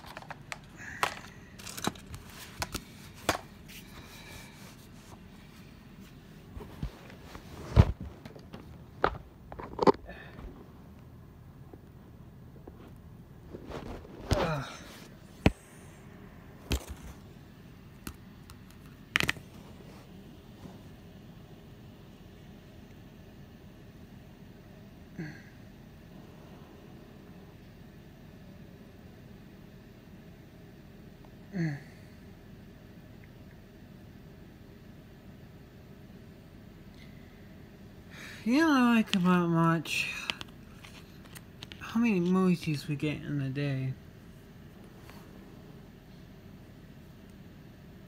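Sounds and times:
plastic toys being handled: 0.0s - 5.3s, 38.6s - 42.4s.

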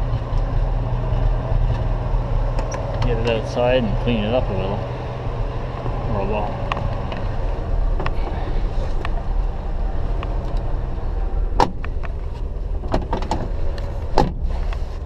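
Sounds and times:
car engine idling: 0.0s - 15.0s
sharp clunks: 11.6s - 12.1s.

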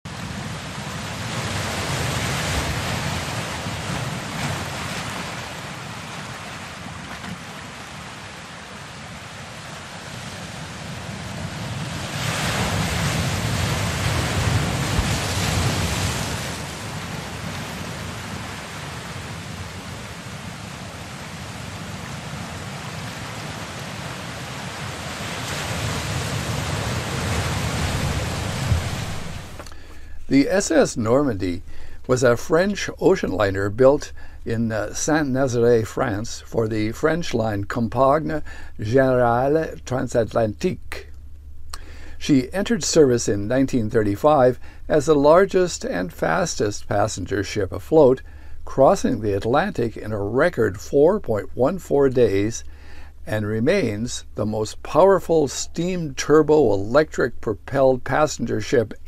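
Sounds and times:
ocean waves washing: 0.0s - 59.0s.

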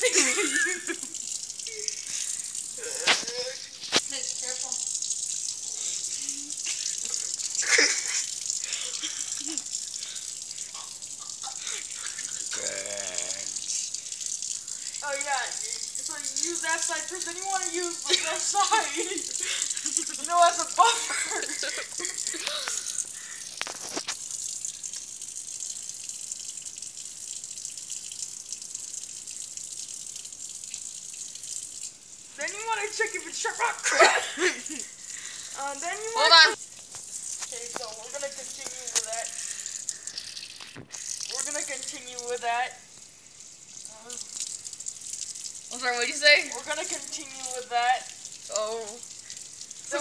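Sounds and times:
tap water running onto cutlery: 0.0s - 50.0s
tap running into sink: 40.2s - 41.7s.

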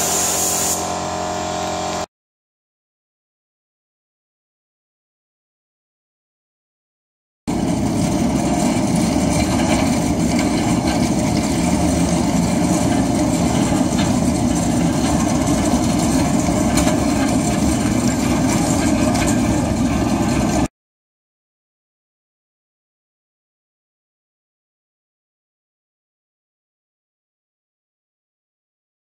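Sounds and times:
metal tank rolling on concrete: 7.5s - 20.7s.

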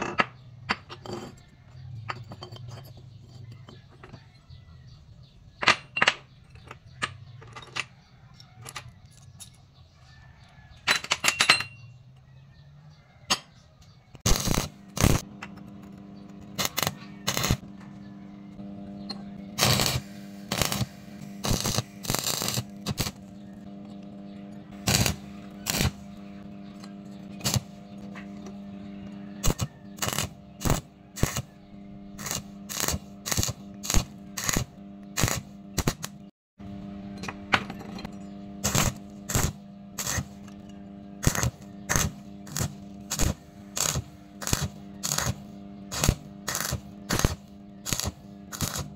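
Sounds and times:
welding set electrical hum: 0.0s - 48.9s
steel tubes clinking on metal table: 10.8s - 11.9s
arc welding crackle: 14.2s - 15.3s, 16.3s - 17.6s, 19.5s - 23.7s, 24.7s - 26.4s, 27.3s - 28.1s, 29.4s - 36.3s, 38.6s - 40.5s, 41.2s - 48.9s.

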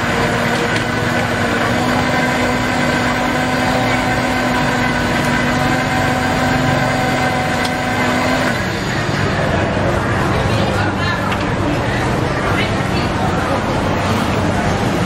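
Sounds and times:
blender motor whining: 0.0s - 9.2s.

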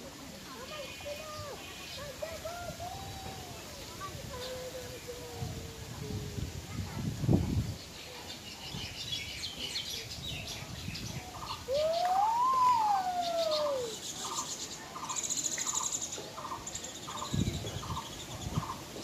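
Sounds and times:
birds chirping: 7.6s - 19.0s.

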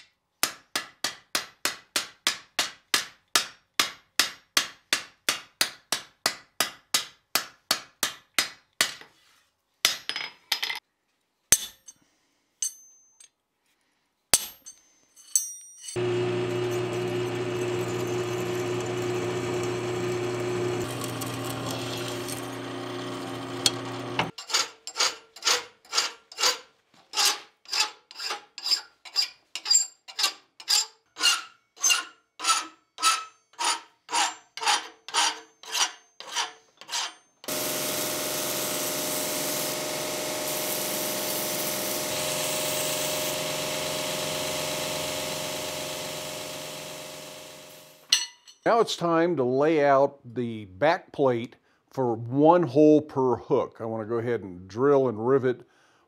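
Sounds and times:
hammer striking steel on anvil: 0.4s - 9.1s, 11.5s - 12.0s, 12.6s - 13.3s, 14.3s - 16.0s, 48.0s - 48.6s
drill press boring steel: 16.0s - 25.0s, 35.2s - 48.1s
hand file rasping on metal: 23.7s - 37.6s.

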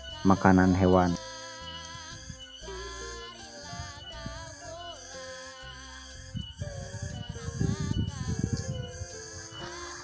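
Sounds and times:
background music with gliding notes: 0.0s - 10.0s
low rhythmic pulse: 0.0s - 10.0s.

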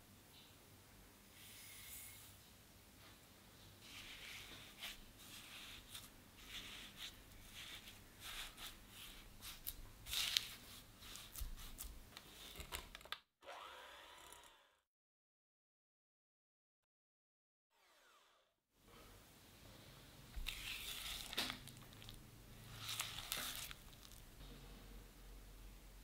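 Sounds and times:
electric hand mixer whining: 13.4s - 14.8s.

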